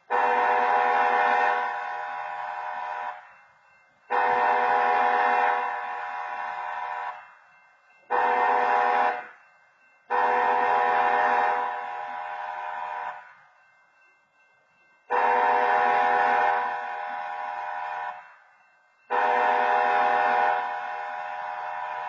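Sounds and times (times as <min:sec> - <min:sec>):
locomotive air horn blasts: 0:00.0 - 0:03.2, 0:04.1 - 0:07.2, 0:08.1 - 0:09.4, 0:10.1 - 0:13.2, 0:15.1 - 0:18.3, 0:19.1 - 0:22.0.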